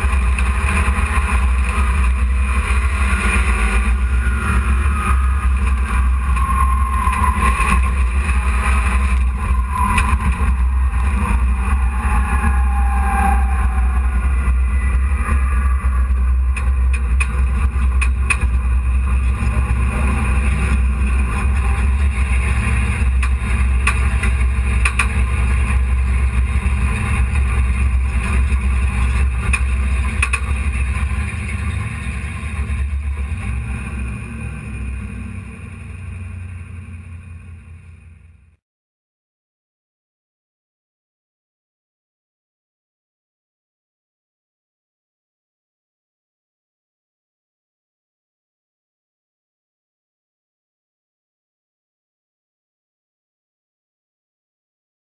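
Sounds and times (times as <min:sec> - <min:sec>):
truck engine droning: 0:00.0 - 0:38.6.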